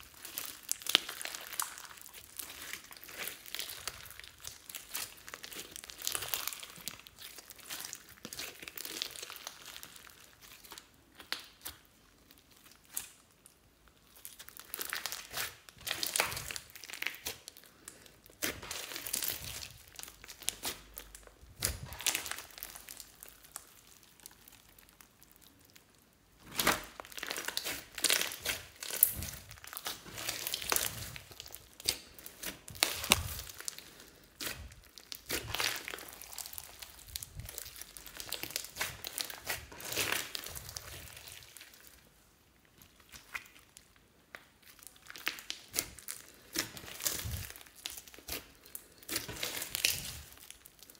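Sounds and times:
slime crackling and clicking: 34.4s - 41.7s.

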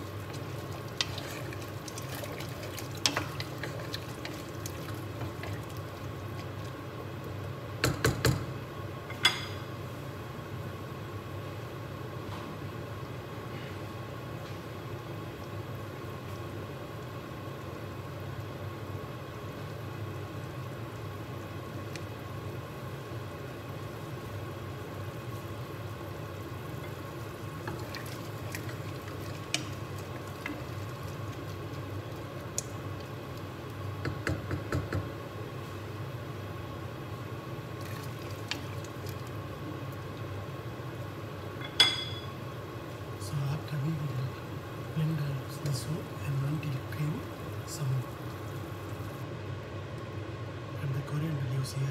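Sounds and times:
wooden spoon stirring in pot: 0.0s - 7.7s, 18.8s - 36.0s, 37.5s - 40.3s
pot cooking hiss: 0.0s - 11.5s, 13.0s - 50.1s.

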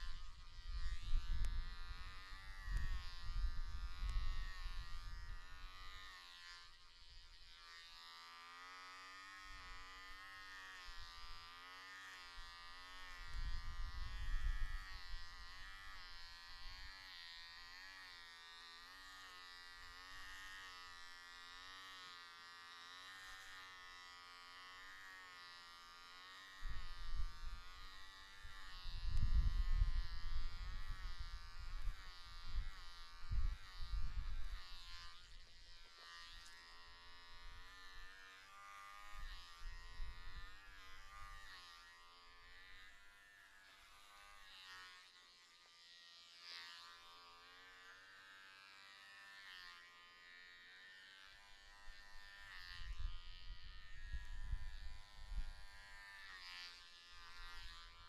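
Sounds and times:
electric hair clippers buzzing: 0.0s - 58.0s.

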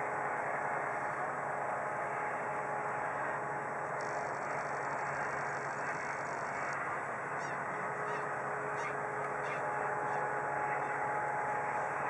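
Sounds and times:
faint hum: 0.0s - 12.0s
outdoor background rumble: 0.0s - 12.0s
waterfowl call: 4.4s - 11.2s.

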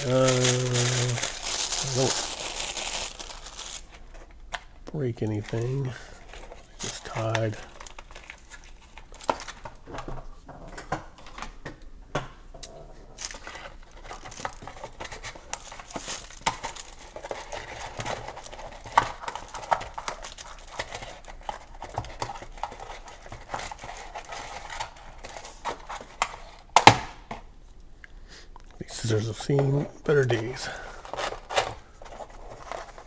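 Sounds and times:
cord and cardboard rustling: 0.0s - 4.3s, 13.2s - 26.4s.

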